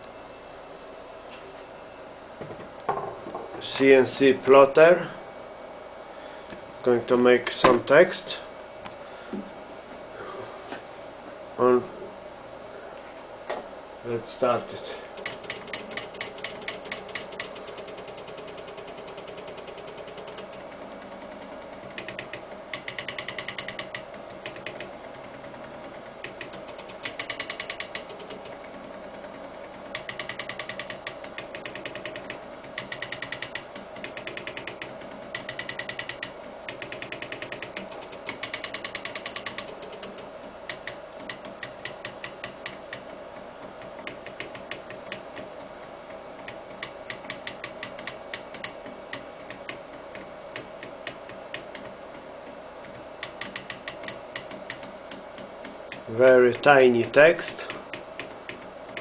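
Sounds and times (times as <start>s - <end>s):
steady hum: 0.0s - 59.0s
stepper motors buzzing ticks: 13.5s - 59.0s.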